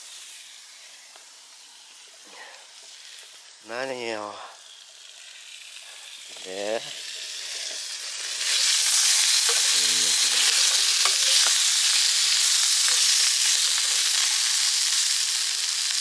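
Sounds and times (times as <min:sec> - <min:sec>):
sausages sizzling in frying pan: 0:00.0 - 0:16.0.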